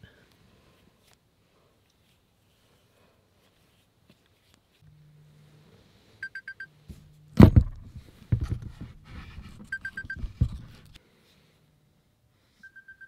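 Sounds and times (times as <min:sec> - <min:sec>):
smartphone alarm beeping: 0:06.2 - 0:06.8, 0:09.6 - 0:10.4, 0:12.6 - 0:13.0
rustling and knocks: 0:06.9 - 0:11.0
loud thump: 0:07.4 - 0:09.0.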